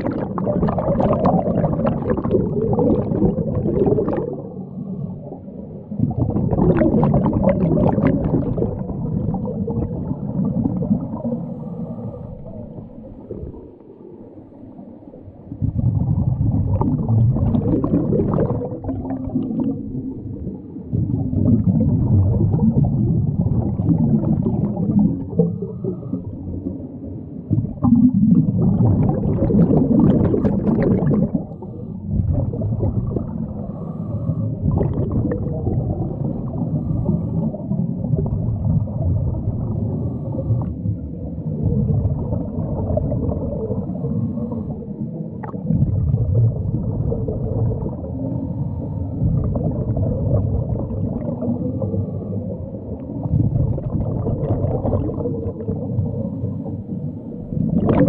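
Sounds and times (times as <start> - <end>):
underwater regulator bubbling: 0.0 - 58.0.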